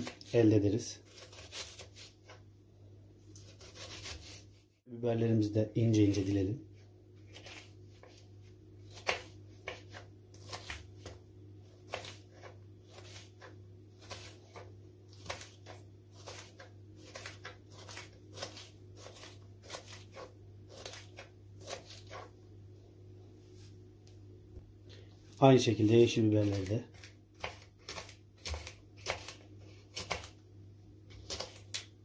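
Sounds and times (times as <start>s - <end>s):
knife slicing on wooden board: 3.4s - 4.5s, 11.9s - 22.3s.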